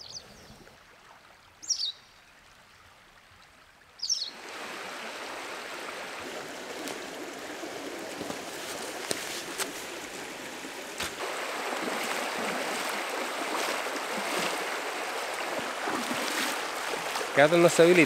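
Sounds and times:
high bird chirps: 0:01.6 - 0:02.1, 0:04.0 - 0:04.3
rushing river: 0:02.4 - 0:18.0.

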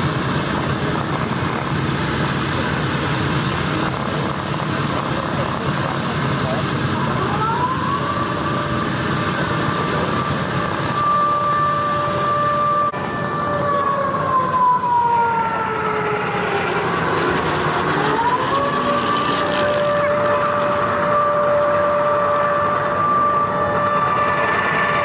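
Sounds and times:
aircraft engine whining overhead: 0:00.0 - 0:25.0
rising engine tone: 0:06.5 - 0:25.0.

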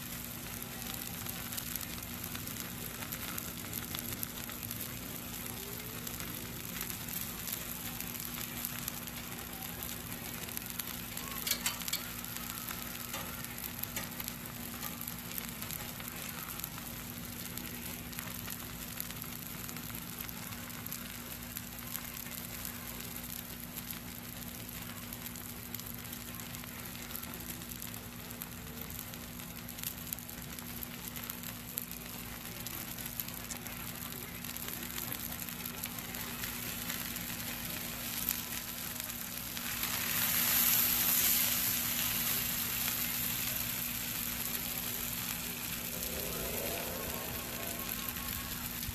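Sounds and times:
crackles and pops: 0:00.0 - 0:48.9
steaks sizzling on a griddle: 0:00.0 - 0:48.9.

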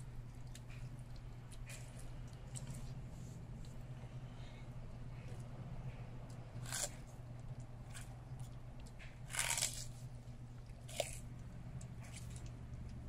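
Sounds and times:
low steady hum: 0:00.0 - 0:13.0
tortoise crunching celery: 0:05.2 - 0:13.0.

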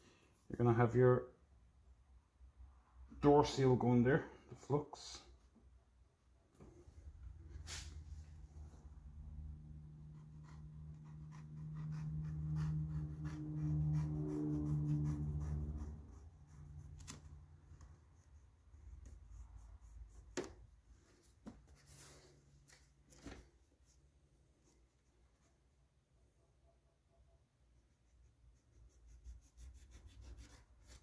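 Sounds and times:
low mechanical hum: 0:06.6 - 0:21.1
hands rubbing trim material: 0:10.2 - 0:25.6, 0:28.6 - 0:31.0.

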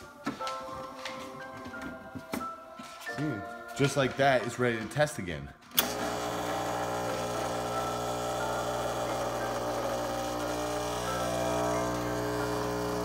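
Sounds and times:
espresso machine pump humming: 0:05.8 - 0:13.0.

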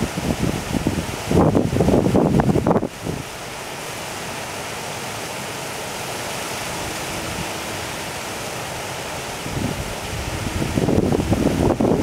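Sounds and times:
wind buffeting microphone: 0:00.0 - 0:03.3, 0:09.3 - 0:12.0
river water rushing over gravel: 0:00.0 - 0:12.0.

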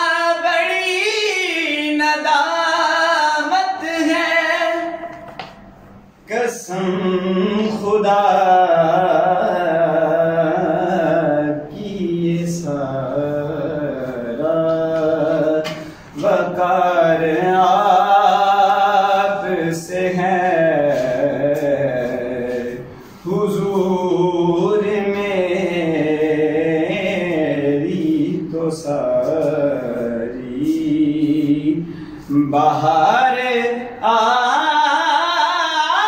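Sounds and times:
man singing unaccompanied: 0:00.0 - 0:36.0.

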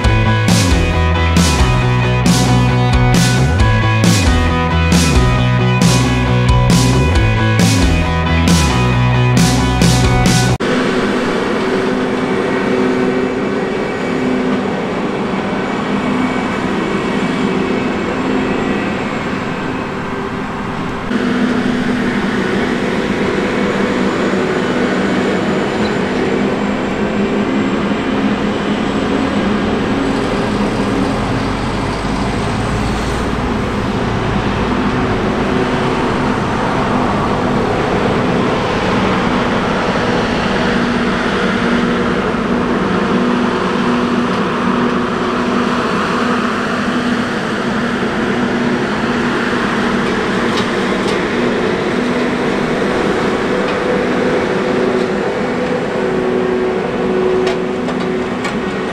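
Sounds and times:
deep low rumble: 0:00.0 - 0:10.6
diesel farm machines driving past: 0:00.0 - 0:58.9.

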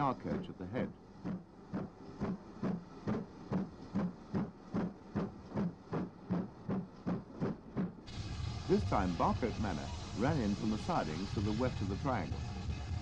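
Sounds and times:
steam locomotive exhaust chuffs: 0:01.2 - 0:13.0
steam hissing: 0:08.0 - 0:13.0.

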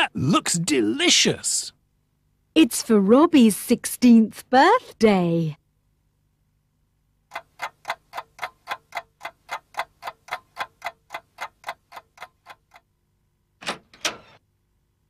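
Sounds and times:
clock ticking: 0:07.3 - 0:12.9.

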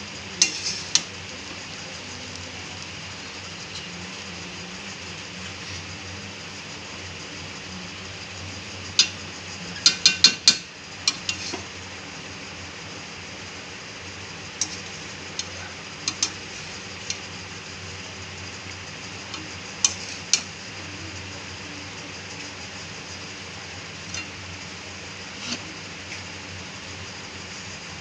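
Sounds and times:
steady hiss: 0:00.0 - 0:28.0
spatula clinking against pan: 0:09.8 - 0:11.4.

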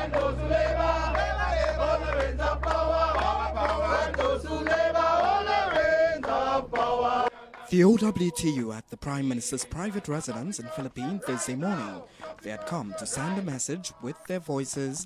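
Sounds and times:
low steady hum: 0:00.0 - 0:07.0
crowd chanting in unison: 0:00.0 - 0:08.6, 0:09.3 - 0:15.0.

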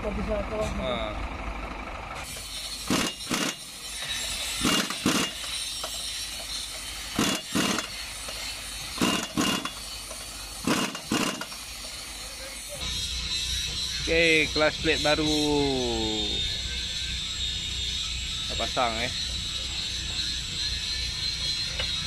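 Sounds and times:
impact wrench hammering bolts: 0:02.4 - 0:12.1.

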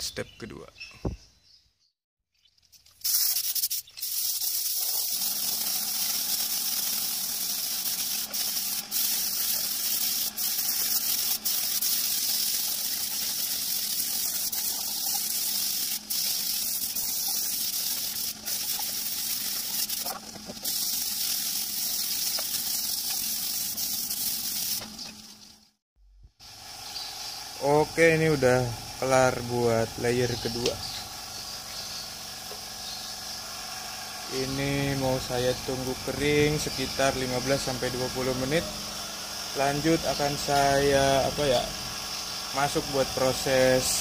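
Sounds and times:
spray gun hissing: 0:03.0 - 0:24.9, 0:33.6 - 0:44.0.

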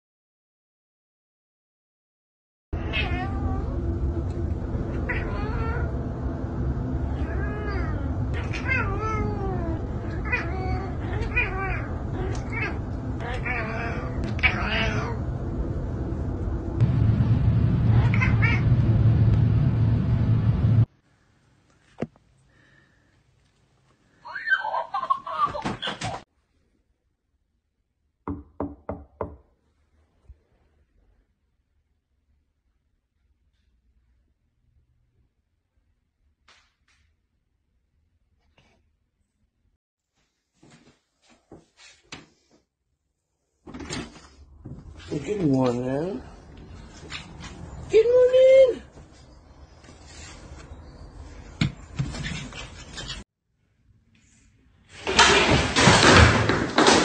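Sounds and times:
cat meowing: 0:02.8 - 0:03.8, 0:04.9 - 0:06.0, 0:07.1 - 0:15.2, 0:17.9 - 0:18.7
low background rumble: 0:02.8 - 0:21.2.

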